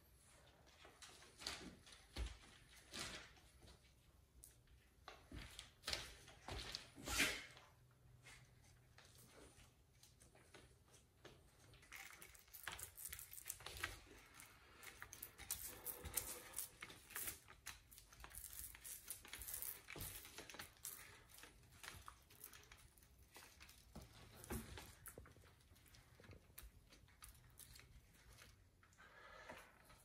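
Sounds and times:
paint roller sticky crackling: 10.4 - 28.9.

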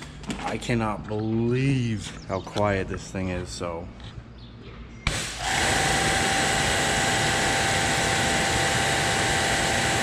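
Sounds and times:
pressure washer motor whine: 5.1 - 10.0
pressure washer water jet hissing: 5.1 - 10.0.

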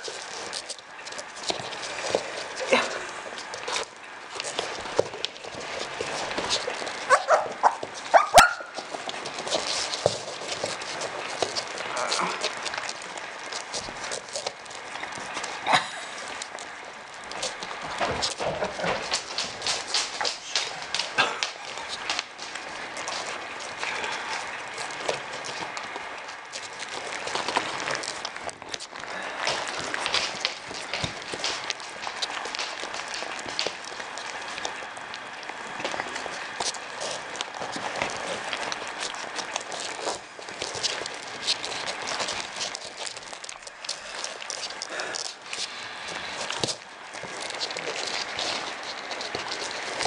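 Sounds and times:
puppies eating: 0.0 - 50.0
puppy yelps: 7.1 - 8.8.

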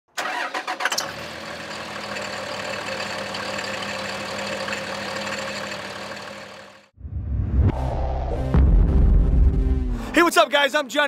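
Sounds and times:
diesel truck engine idling: 1.1 - 6.9.

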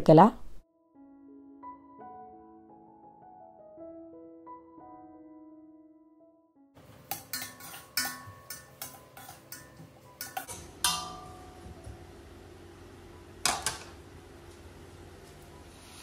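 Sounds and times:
soft piano music: 0.6 - 16.0
metal spoon scraping a pot: 7.0 - 11.0.

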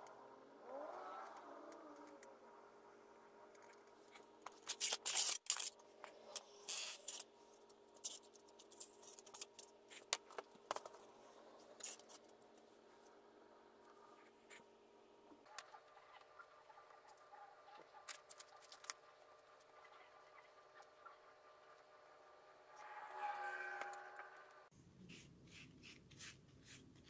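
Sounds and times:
scratchy cutting of paper and foam: 3.6 - 12.3, 24.9 - 27.0.

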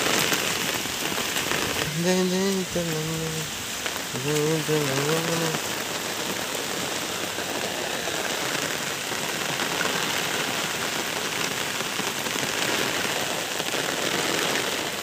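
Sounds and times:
rain falling on shallow water: 0.0 - 15.0.

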